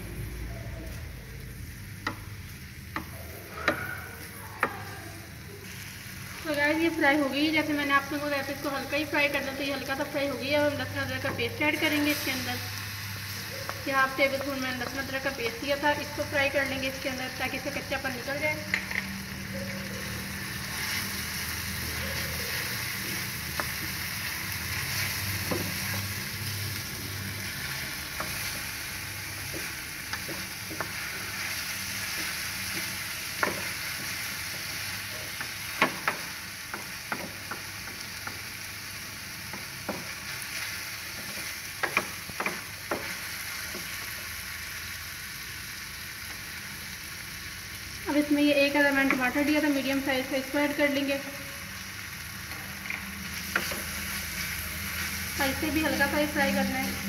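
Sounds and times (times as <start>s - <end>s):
onion sizzling in oil: 0.0s - 57.0s.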